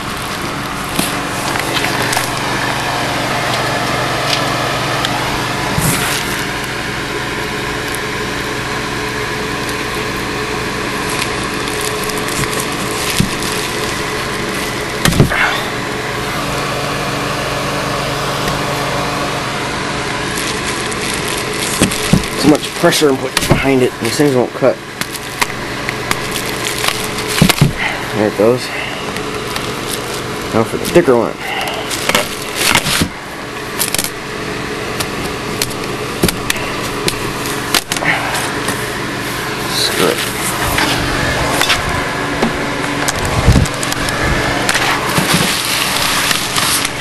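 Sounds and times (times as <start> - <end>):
plastic packaging crackling: 0.0 - 2.8, 5.8 - 6.8, 10.6 - 16.0, 20.0 - 47.0
steady background hum: 0.0 - 47.0.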